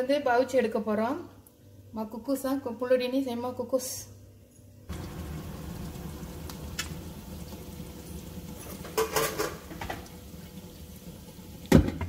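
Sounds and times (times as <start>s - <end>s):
water boiling low rumble: 4.9s - 12.0s.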